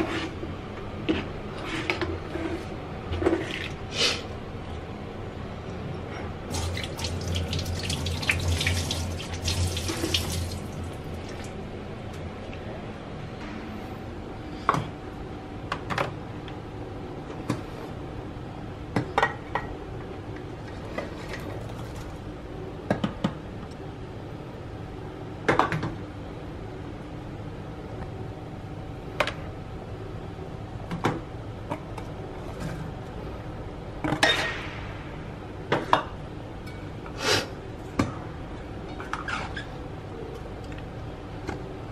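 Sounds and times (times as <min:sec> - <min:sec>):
kitchen tap running: 0:06.5 - 0:11.6.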